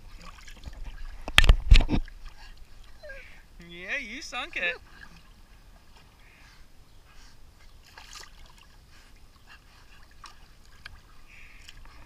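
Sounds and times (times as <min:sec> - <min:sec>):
water splash: 0:00.0 - 0:02.5, 0:07.8 - 0:08.8
pool water lapping and trickling: 0:00.0 - 0:12.0.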